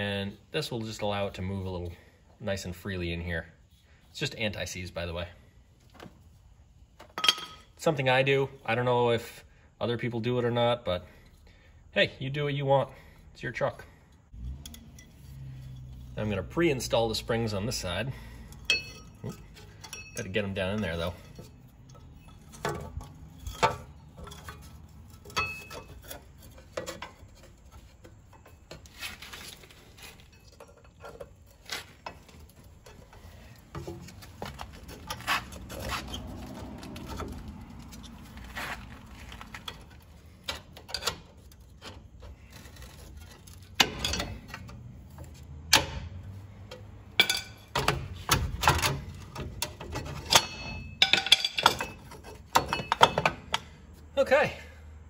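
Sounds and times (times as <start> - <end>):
metallic clicks and clinks: 18.5 - 27.2.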